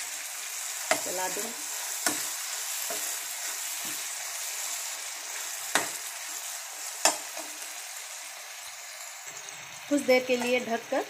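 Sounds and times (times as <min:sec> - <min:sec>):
vegetables sizzling in a frying pan: 0:00.0 - 0:11.0
spoon knocking against pan: 0:05.7 - 0:06.0.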